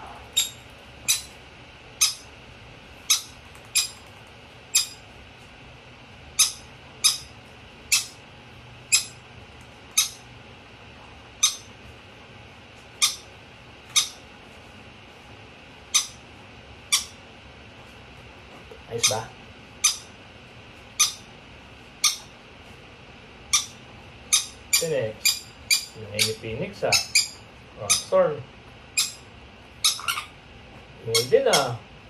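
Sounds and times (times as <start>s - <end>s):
parrot squeaky chirps: 0.4s - 1.3s, 2.0s - 2.2s, 3.1s - 4.0s, 4.7s - 5.0s, 6.4s - 7.3s, 7.9s - 8.2s, 8.9s - 9.2s, 9.9s - 10.2s, 11.4s - 11.7s, 13.0s - 13.3s, 13.9s - 14.2s, 15.9s - 16.2s, 16.9s - 17.2s, 19.0s - 20.1s, 21.0s - 21.3s, 22.0s - 22.3s, 23.5s - 28.2s, 28.9s - 29.2s, 29.8s - 30.4s, 31.1s - 31.7s.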